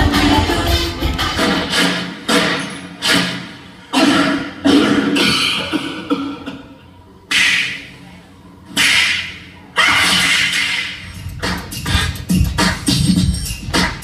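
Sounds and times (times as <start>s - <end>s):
loud dance music hits: 0.0s - 3.7s, 10.0s - 14.0s.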